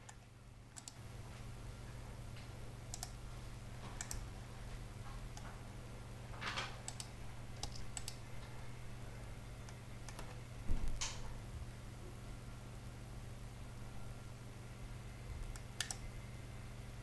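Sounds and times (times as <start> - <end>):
low electrical hum: 0.0 - 17.0
computer mouse clicks: 0.8 - 1.0, 2.9 - 3.2, 4.0 - 4.3, 6.8 - 8.2, 9.6 - 10.4, 15.4 - 16.1.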